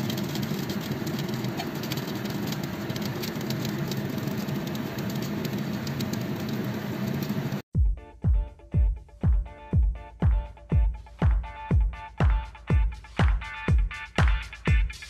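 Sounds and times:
chicken fat sizzling: 0.0s - 7.6s
oven motor and fan humming: 0.0s - 7.6s.

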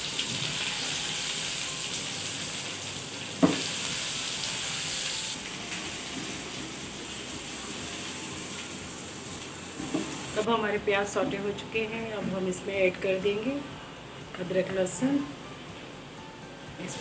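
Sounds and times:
onions sizzling in oil: 0.0s - 10.5s.

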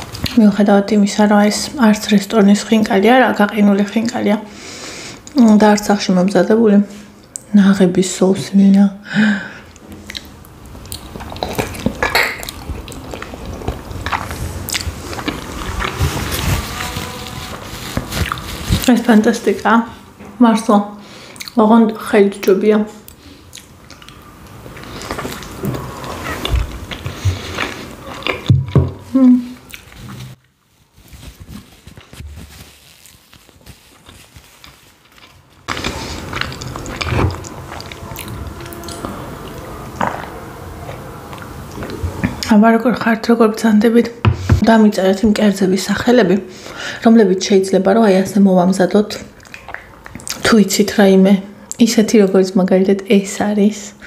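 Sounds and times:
wet chewing and mouth sounds: 9.7s - 18.9s, 21.3s - 21.6s, 23.0s - 42.5s, 49.3s - 50.6s.

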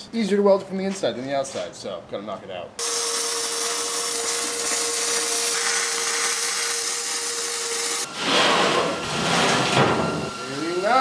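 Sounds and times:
welding arc crackling hiss: 2.8s - 8.1s.

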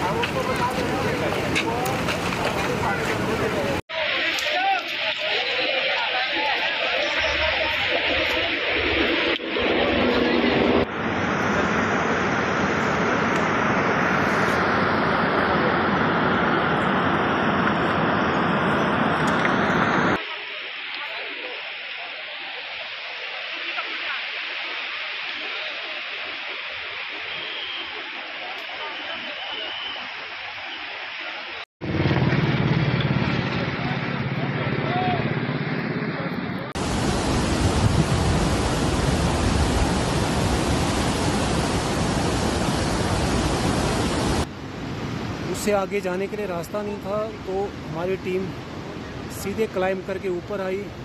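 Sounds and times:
faint voices: 0.0s - 11.8s
loud rushing roar: 0.0s - 20.2s, 29.7s - 45.5s
river rushing over boulders: 12.8s - 31.6s, 36.8s - 51.0s.

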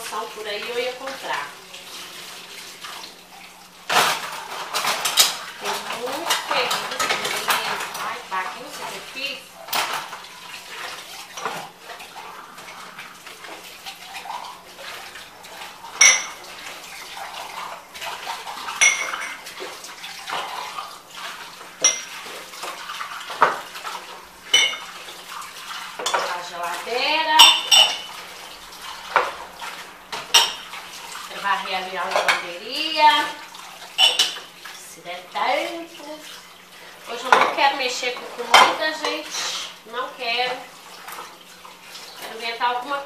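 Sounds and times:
dishes clinking in sink: 3.8s - 34.8s, 36.6s - 39.6s.

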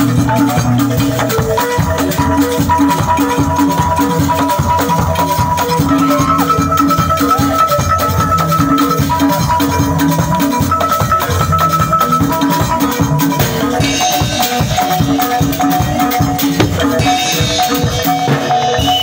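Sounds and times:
driving percussion: 0.0s - 19.0s
repeating melodic phrase: 16.6s - 17.7s.

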